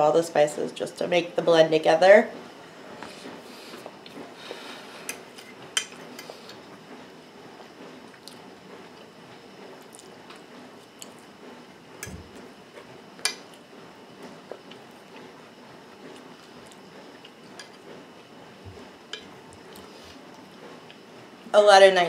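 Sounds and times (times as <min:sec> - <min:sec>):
chewing salad: 0:08.1 - 0:09.1, 0:09.8 - 0:11.3, 0:14.4 - 0:21.0.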